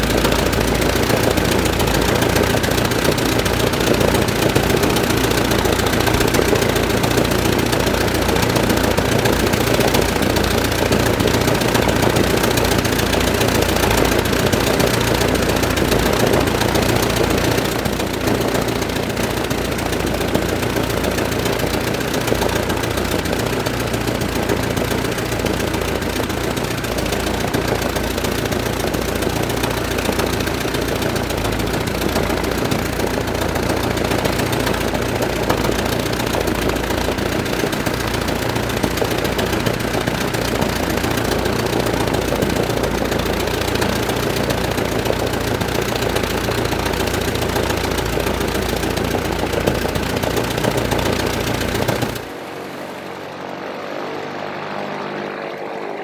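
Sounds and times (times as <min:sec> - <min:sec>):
propeller plane engine idling: 0:00.0 - 0:56.0.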